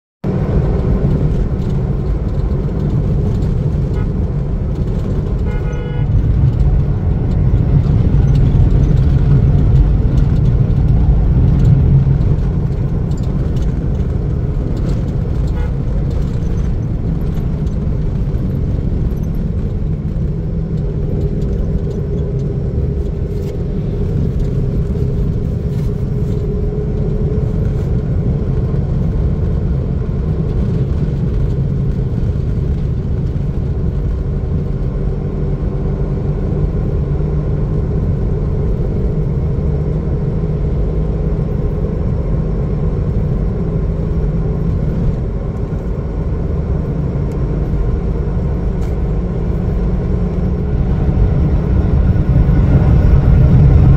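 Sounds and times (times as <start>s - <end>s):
car engine and road rumble: 0.2s - 53.9s
vehicle horn toot: 5.4s - 6.2s, 15.4s - 15.8s.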